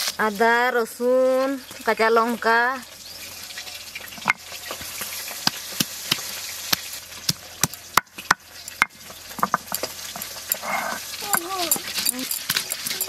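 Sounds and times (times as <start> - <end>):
frying sizzle: 0.0 - 13.0
stone pestle knocking on grinding stone: 7.6 - 9.9.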